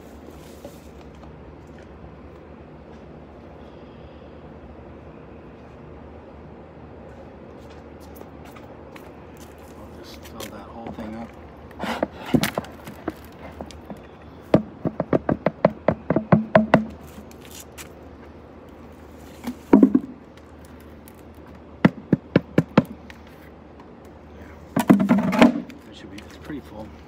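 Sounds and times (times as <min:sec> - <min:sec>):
taps on planter pots: 0:11.9 - 0:17.2, 0:19.4 - 0:20.2, 0:21.8 - 0:23.2, 0:24.8 - 0:26.4.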